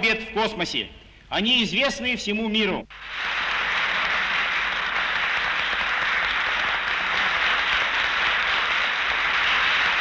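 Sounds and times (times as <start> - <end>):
audience applauding: 2.9 - 10.0.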